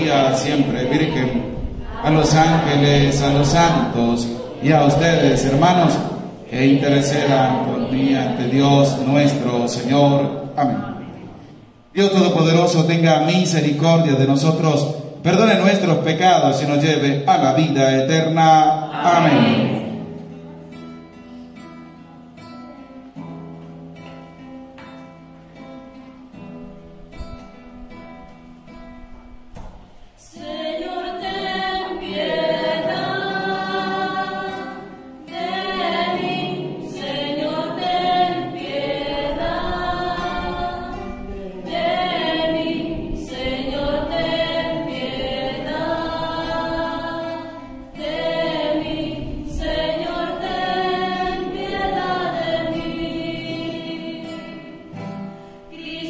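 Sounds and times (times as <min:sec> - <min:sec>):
choir singing: 0:00.0 - 0:11.8, 0:18.7 - 0:20.3, 0:30.2 - 0:56.0.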